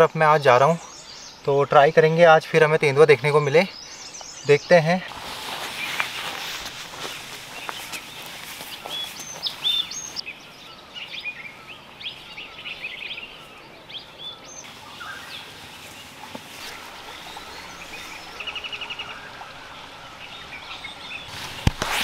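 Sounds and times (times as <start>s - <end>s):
birds chirping and whistling: 0.0s - 21.7s
bird trill: 7.0s - 21.3s.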